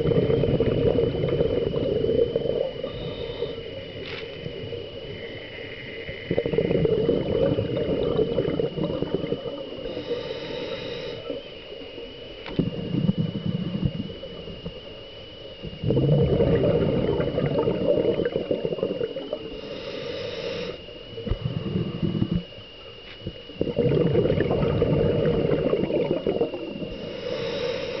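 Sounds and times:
exhaled bubbles underwater: 0.0s - 28.0s
steady high whine: 0.0s - 28.0s
regulator inhalation hiss: 2.1s - 7.0s, 9.6s - 15.1s, 17.8s - 22.5s, 25.2s - 28.0s.

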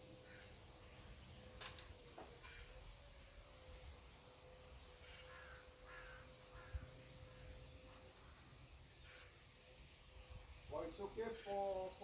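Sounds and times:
birds calling harshly: 0.0s - 12.0s.

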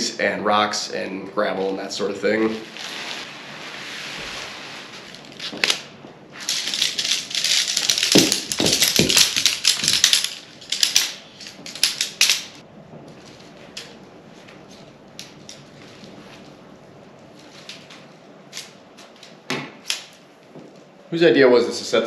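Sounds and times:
tent fabric rustling: 2.4s - 9.1s
tent pole sections snapping: 5.1s - 12.6s, 17.4s - 20.2s
tent poles clattering: 5.1s - 12.6s.

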